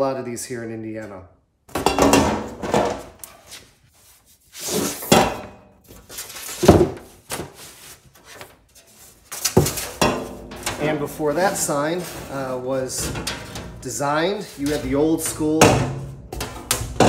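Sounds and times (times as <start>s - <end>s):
metal signs scraping and clattering: 7.6s - 17.0s.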